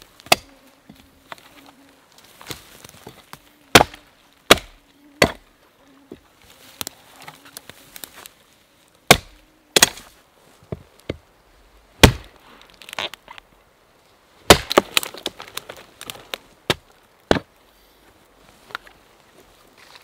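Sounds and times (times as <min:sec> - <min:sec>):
axe chopping branches: 0:00.2 - 0:00.5, 0:02.4 - 0:05.4, 0:09.1 - 0:10.1, 0:12.0 - 0:12.3, 0:14.5 - 0:16.1
dry branch cracking and snapping: 0:02.1 - 0:05.4, 0:06.7 - 0:08.4, 0:12.0 - 0:13.4, 0:14.5 - 0:17.4.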